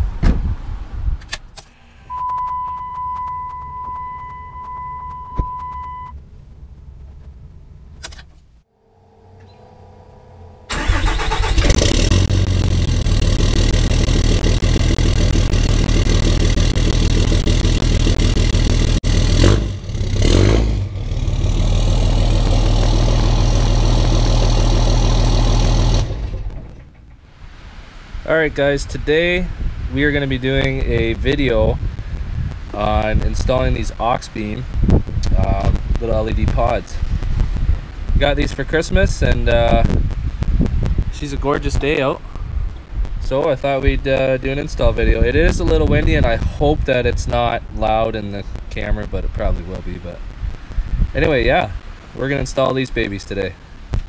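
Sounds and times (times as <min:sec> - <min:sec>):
steady electronic tone: 0:08.7 - 0:19.4
diesel engine running: 0:08.8 - 0:27.3.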